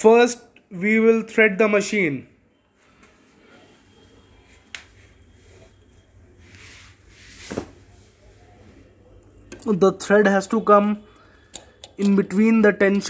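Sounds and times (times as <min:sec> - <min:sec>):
soft rubbing: 0:02.7 - 0:09.0.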